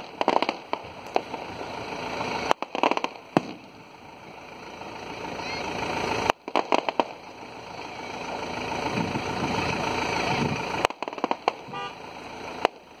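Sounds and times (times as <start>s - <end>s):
firework crackling pops: 0.0s - 3.9s, 6.2s - 7.4s, 10.8s - 13.0s
loud firework crack: 0.0s - 4.0s, 6.1s - 7.5s, 10.4s - 13.0s
firework rushing noise: 0.0s - 13.0s.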